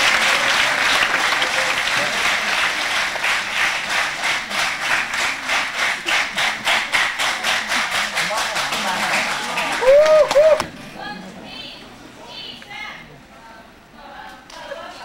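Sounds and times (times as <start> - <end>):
audience applauding: 0.0 - 10.7.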